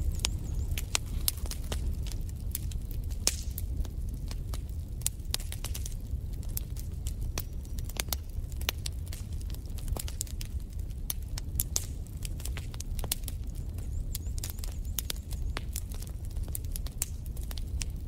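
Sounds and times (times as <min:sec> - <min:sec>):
low steady rumble: 0:00.0 - 0:07.7
log fire crackling: 0:00.0 - 0:18.0.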